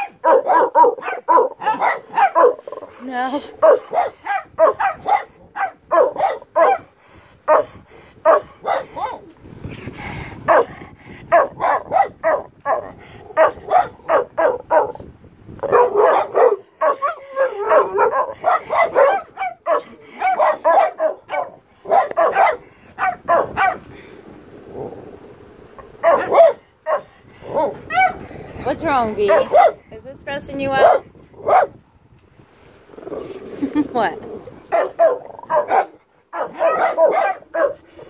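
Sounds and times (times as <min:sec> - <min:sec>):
dog barking: 0:00.0 - 0:02.9, 0:03.6 - 0:06.9, 0:07.5 - 0:09.2, 0:10.5 - 0:10.7, 0:11.3 - 0:15.0, 0:15.6 - 0:23.8, 0:26.0 - 0:28.2, 0:29.2 - 0:29.8, 0:30.8 - 0:31.8, 0:34.7 - 0:37.8.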